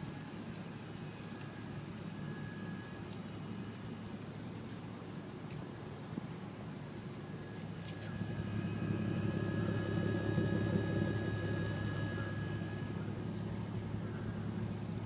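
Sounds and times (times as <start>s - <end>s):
faint high whine: 0.0s - 15.0s
car engine idling: 7.4s - 15.0s.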